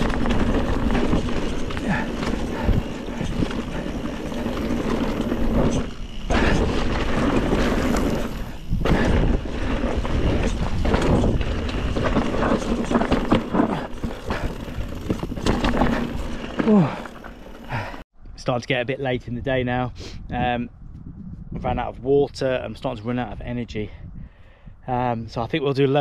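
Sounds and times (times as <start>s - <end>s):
bike tyres rumbling on dirt: 0.0s - 18.0s.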